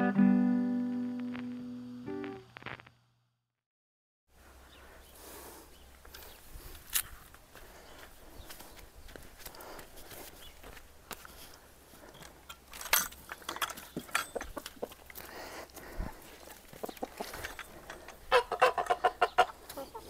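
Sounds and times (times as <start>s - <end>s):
chickens clucking: 13.9s - 20.0s
quick repeated chicken calls: 16.7s - 17.5s, 18.3s - 20.0s.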